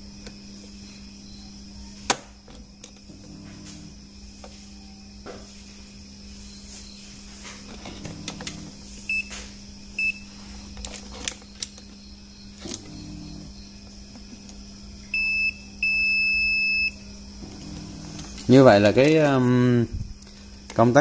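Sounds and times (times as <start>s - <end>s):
multimeter continuity beeps: 8.9s - 10.7s, 11.4s - 13.8s, 15.1s - 19.3s.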